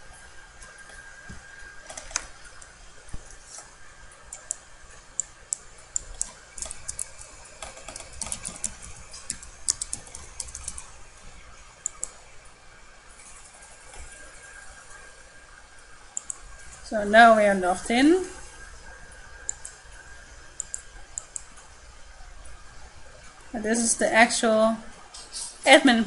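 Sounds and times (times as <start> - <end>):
typing on computer keyboard: 1.9 - 2.3, 5.2 - 10.9.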